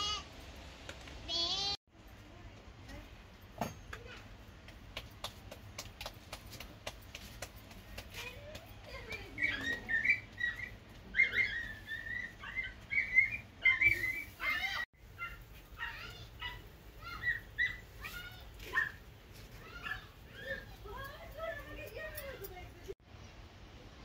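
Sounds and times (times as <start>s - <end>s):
birds chirping: 8.5s - 22.6s.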